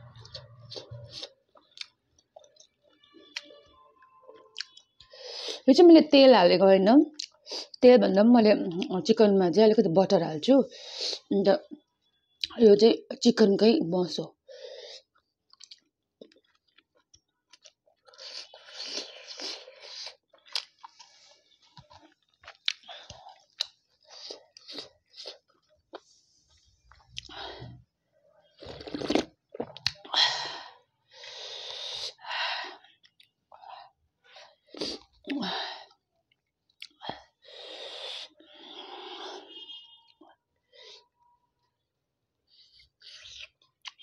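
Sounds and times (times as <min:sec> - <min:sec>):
wet chewing: 0:15.0 - 0:26.1.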